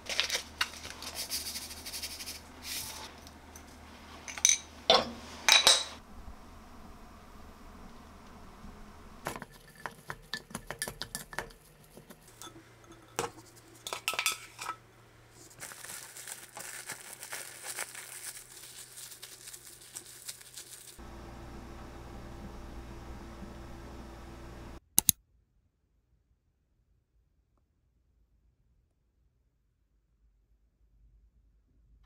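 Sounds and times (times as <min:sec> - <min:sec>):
plastic cling wrap crinkling: 0:00.0 - 0:03.1, 0:15.4 - 0:21.0
steady low hum: 0:00.4 - 0:09.6, 0:21.0 - 0:24.8
utensil scraping glass bowl: 0:09.3 - 0:14.8.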